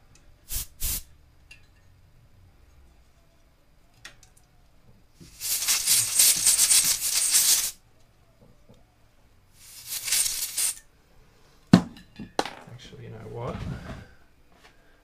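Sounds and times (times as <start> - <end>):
compressed air duster hissing: 0.5 - 1.1, 5.2 - 7.8, 9.6 - 10.8.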